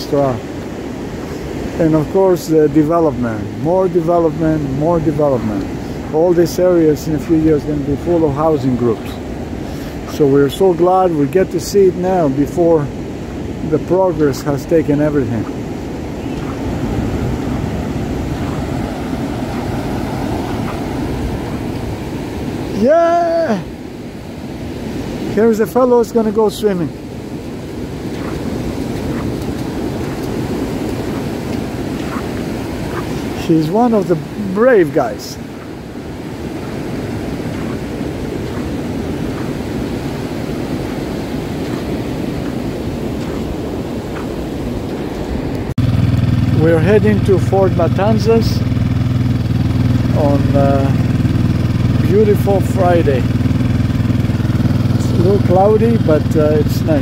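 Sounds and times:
ocean surf breaking: 0.0 - 57.0
wind on microphone: 3.4 - 25.4, 26.2 - 46.5.

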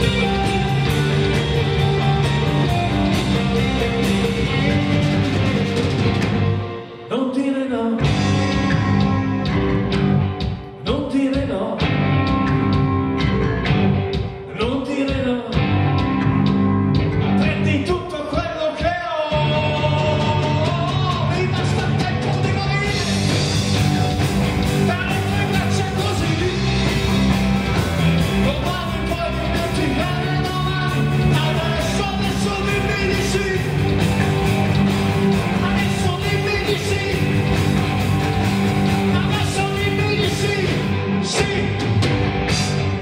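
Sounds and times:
drum kit: 0.0 - 7.1, 8.0 - 43.0
bass guitar: 0.0 - 7.2, 8.0 - 18.4, 19.3 - 43.0
electric guitars: 0.0 - 18.4, 19.3 - 43.0.

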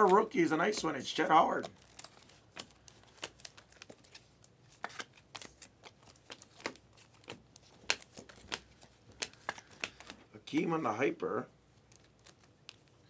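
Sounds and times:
cards sliding clicks and swishes: 1.6 - 10.2.

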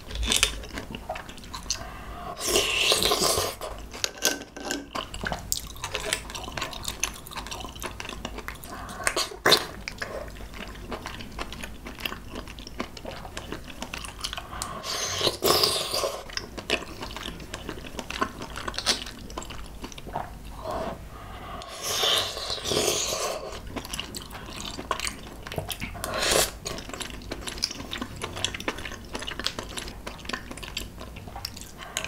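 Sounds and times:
person chewing: 0.0 - 4.0, 4.6 - 32.0
wet sucking and slurping: 20.6 - 23.6, 25.9 - 26.7.

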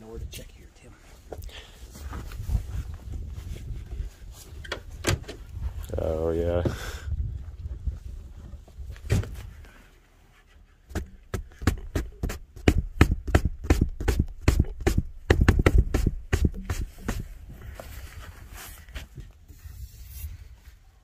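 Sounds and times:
rapid sharp taps and knocks: 10.9 - 17.3.

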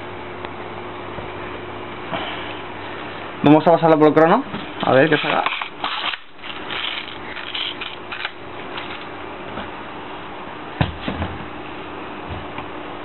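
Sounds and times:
steady background noise: 0.0 - 13.0
toy gun clicks and plastic rattles: 5.4 - 8.9.

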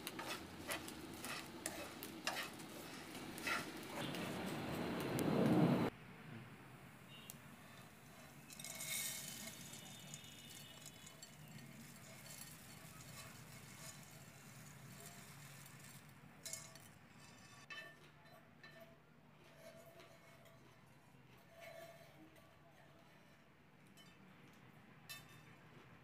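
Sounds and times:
puffed rice rattling onto plate: 0.0 - 4.1, 8.2 - 17.1.

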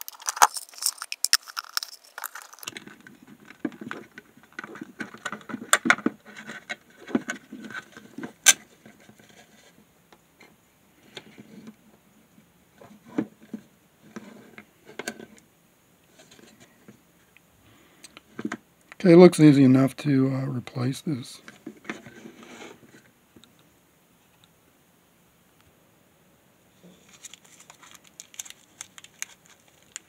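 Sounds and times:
plastic housing clicks and scrapes: 0.0 - 9.7.

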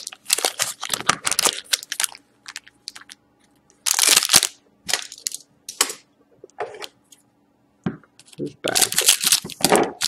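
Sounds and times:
foil wrappers crinkling: 0.0 - 3.2, 3.8 - 5.4, 8.2 - 10.0.

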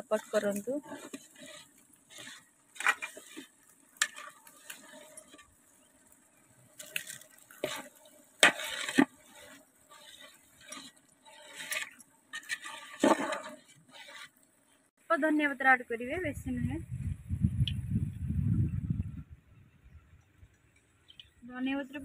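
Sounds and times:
spatula knocking and scraping pot: 0.0 - 5.5, 6.9 - 14.3
water sloshing in pot: 0.0 - 6.2, 6.8 - 14.4.

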